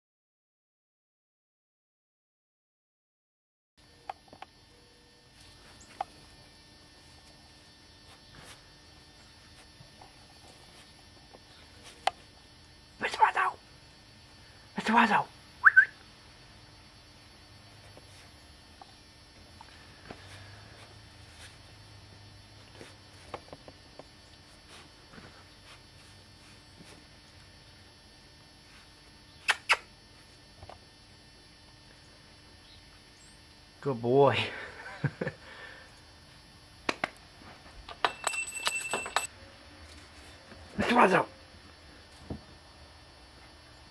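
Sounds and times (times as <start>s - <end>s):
faint steady hum: 3.8s - 43.9s
short sharp clicks: 29.4s - 29.9s.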